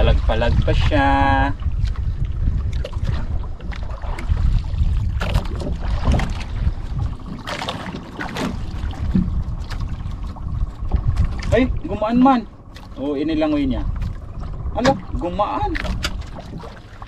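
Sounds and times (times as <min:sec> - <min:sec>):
water sloshing against hull: 0:00.0 - 0:17.0
wind rumbling on microphone: 0:00.0 - 0:17.0
short splashes: 0:02.6 - 0:13.1, 0:13.8 - 0:17.0.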